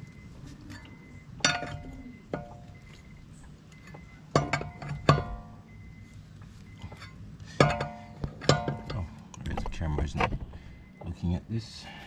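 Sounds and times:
lug wrench clanking on lug nuts: 0.6 - 2.8, 3.4 - 5.8, 6.4 - 10.6.

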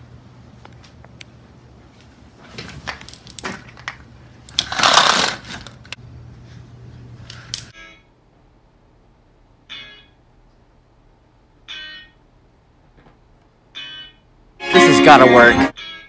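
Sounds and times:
metallic clinks and jangling: 2.9 - 3.8, 7.3 - 7.7.

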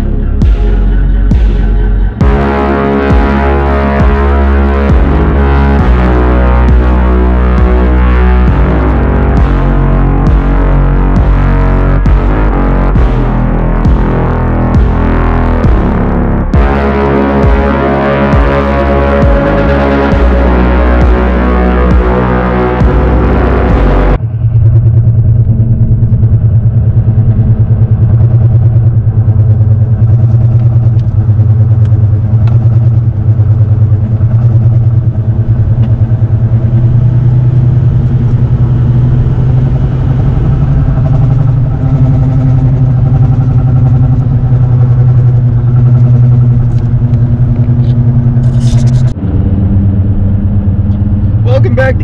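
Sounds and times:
music: 0.0 - 49.9
wheel bearing drone with throb: 0.0 - 52.0.

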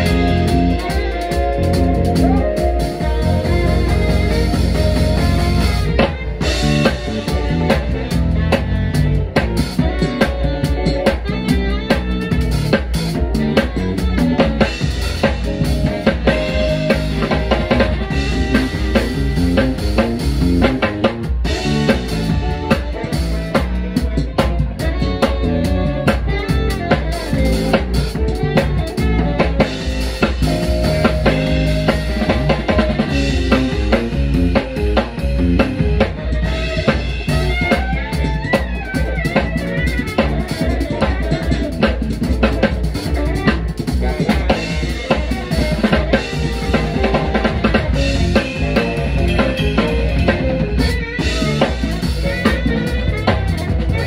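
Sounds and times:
live band playing: 0.0 - 54.0.

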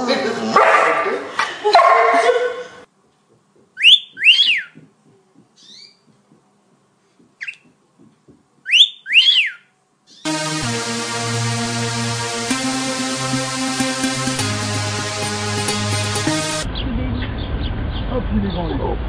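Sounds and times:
bird whistling two notes: 3.8 - 4.8, 8.7 - 9.6
faint bird chirp: 3.8 - 4.8, 5.6 - 6.1, 8.7 - 10.3.

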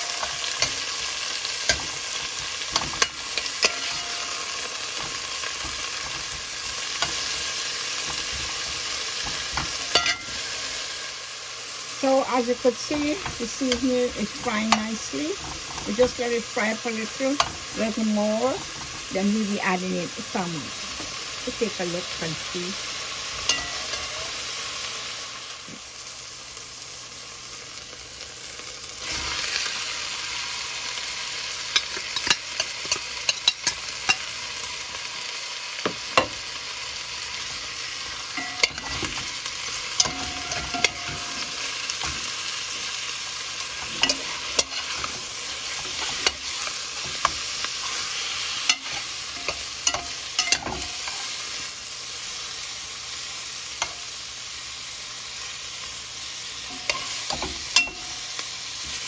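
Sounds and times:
food sizzling in hot oil: 0.0 - 59.0
metal spoon scraping a pot: 1.7 - 7.4.

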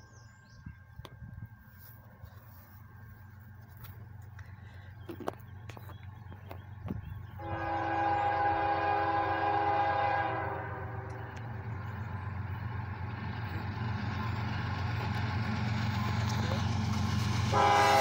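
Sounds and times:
low rumble of train: 0.0 - 18.0
locomotive air horn blast: 7.4 - 11.2, 17.5 - 18.0.

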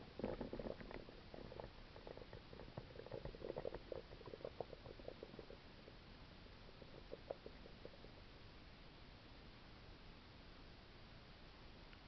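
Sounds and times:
stomach gurgling: 0.0 - 8.4.

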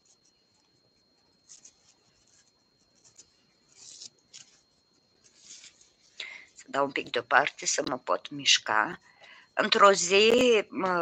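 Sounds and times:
hands rustling yarn: 1.5 - 7.1.

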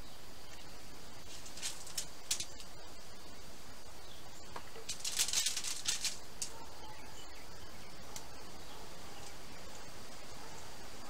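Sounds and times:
background hiss: 0.0 - 11.0
rustling and scraping of patties: 1.2 - 2.8, 4.6 - 6.6
faint high steady tone: 6.4 - 11.0.

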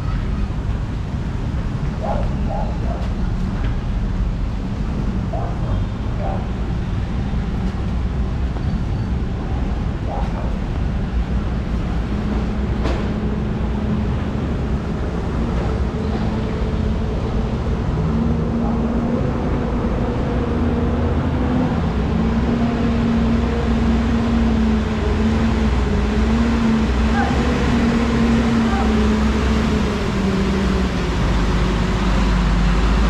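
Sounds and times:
street background noise: 0.0 - 33.0.

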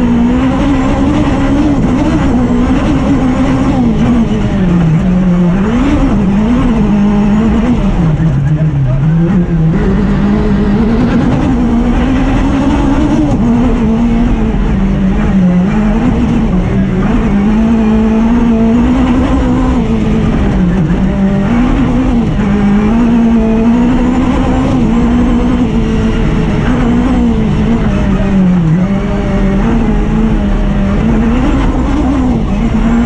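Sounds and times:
motorcycle engine at high revs: 0.0 - 33.0.

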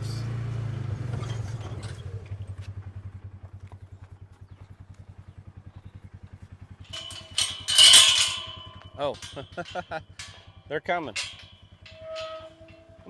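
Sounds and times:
vehicle engine idling: 0.0 - 13.0
chain rattling against metal gate: 6.7 - 13.0.

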